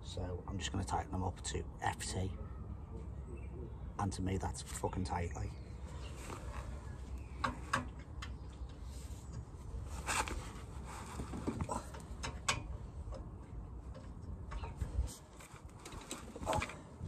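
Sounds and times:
clicks and knocks of hand tools: 0:11.5 - 0:13.3.

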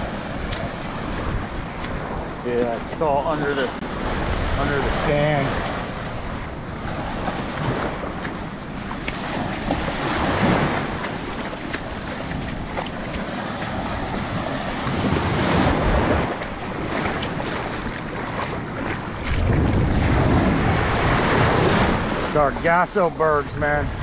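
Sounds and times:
wind buffeting microphone: 0:00.0 - 0:24.0
small waves breaking on seaweed: 0:06.8 - 0:23.8.

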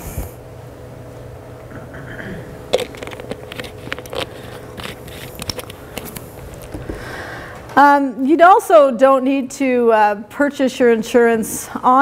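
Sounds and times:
steady low hum: 0:00.0 - 0:12.0
plastic bottle crinkling: 0:02.7 - 0:06.9.

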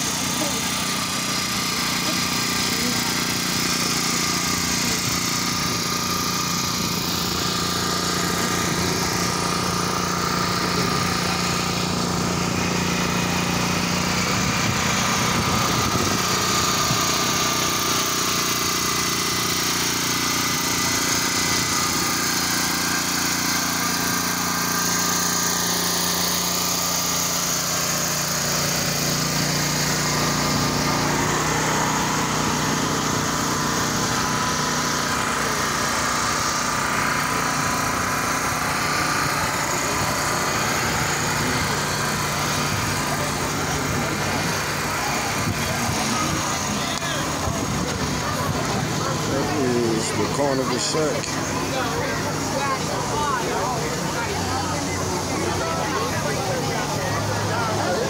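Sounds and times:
small engine running: 0:00.0 - 0:58.0.

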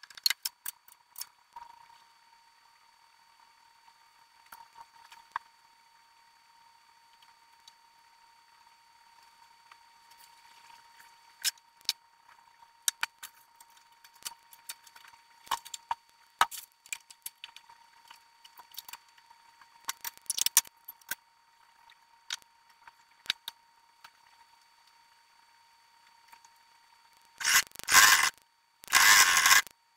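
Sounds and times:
thin high hum: 0:27.1 - 0:29.7.

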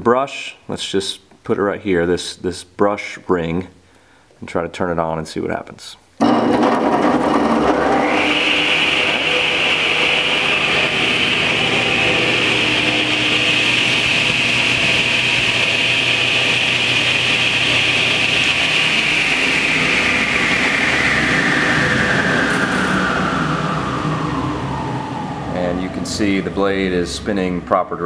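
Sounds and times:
table saw motor whining: 0:06.2 - 0:28.0.

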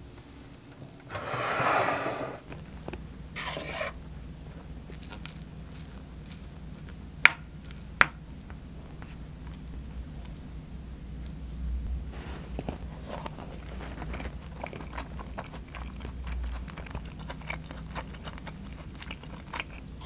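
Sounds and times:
rubbing scrape: 0:01.1 - 0:02.4, 0:03.4 - 0:04.0.

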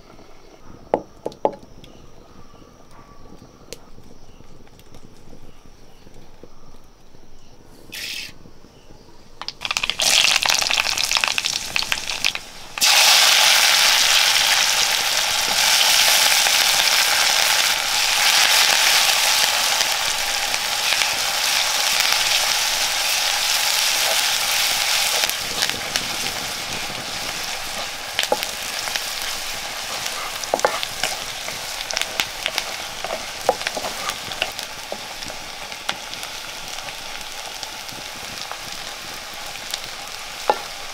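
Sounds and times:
hot oil sizzling: 0:07.8 - 0:40.9
spatula scraping pan: 0:27.6 - 0:31.3.

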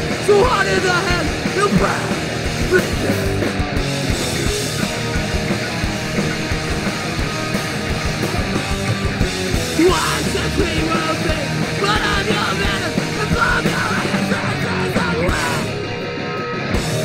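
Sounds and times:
punk rock band playing: 0:00.0 - 0:17.0.

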